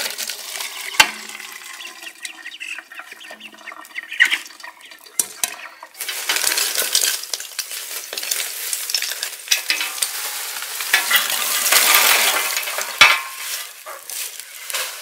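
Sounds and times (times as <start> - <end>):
plastic bag rustling: 0.0 - 1.0, 6.0 - 15.0
charcoal clattering onto fire: 0.0 - 2.0, 5.0 - 15.0
fire crackling: 0.0 - 15.0.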